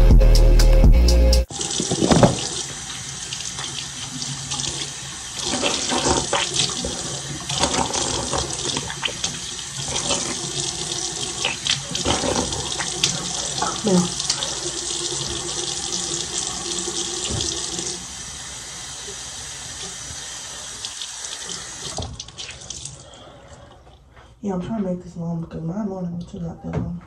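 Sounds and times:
background music: 0.0 - 1.5
splashes of washing: 1.5 - 18.0, 19.8 - 23.2
tap running into sink: 1.6 - 2.8, 17.1 - 17.9.

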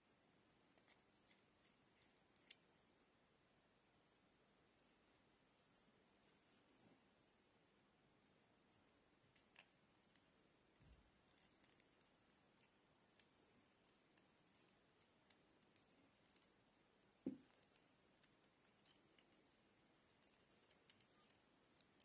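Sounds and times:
connector clicking and scratching: 9.4 - 19.4, 20.2 - 22.0.

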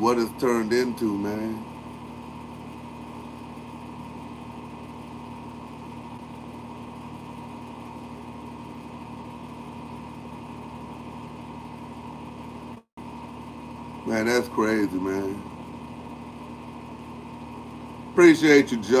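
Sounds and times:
motor humming steadily: 0.0 - 19.0.

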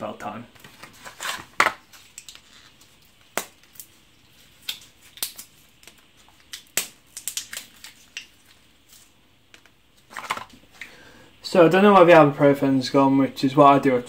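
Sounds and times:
foil blister pack popping: 4.6 - 8.6.

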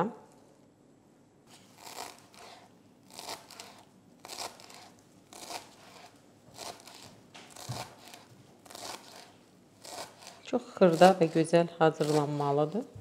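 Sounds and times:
knife chopping on cutting board: 3.2 - 11.4.

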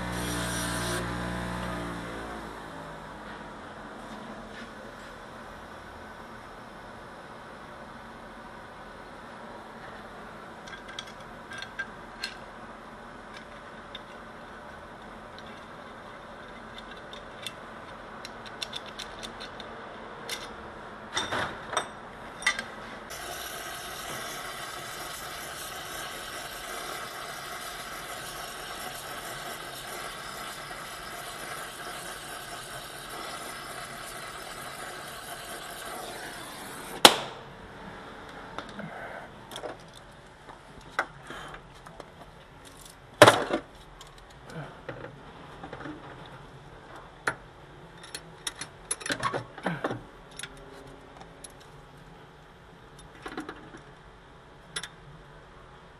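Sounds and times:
small metal parts clicking: 16.4 - 19.7
steady hiss: 23.1 - 37.0.

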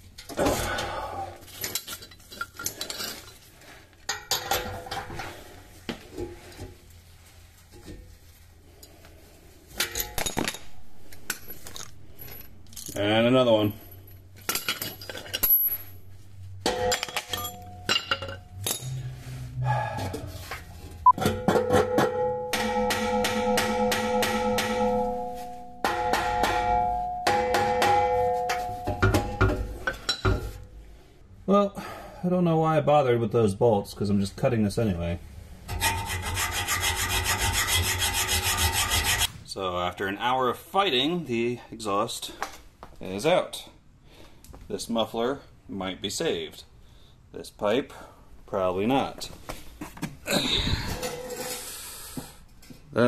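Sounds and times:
metal tools clinking and rattling: 1.5 - 3.5, 9.7 - 19.1, 50.7 - 51.8
struck metal ringing: 9.8 - 19.0, 21.1 - 30.1
hammer striking exhaust pipe: 16.6 - 18.4, 21.2 - 30.5.

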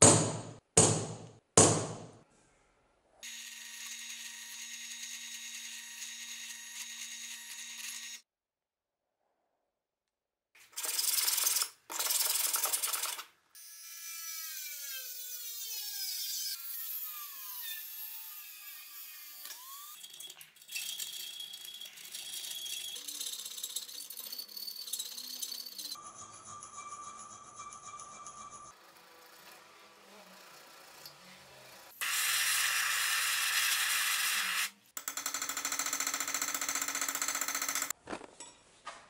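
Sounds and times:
rotary tool cutting metal: 13.0 - 26.0, 28.7 - 34.7.

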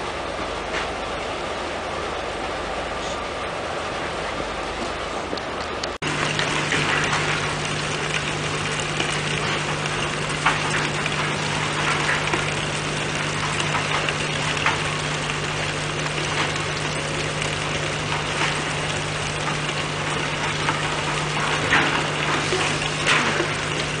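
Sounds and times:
heavy machinery noise: 6.0 - 24.0.

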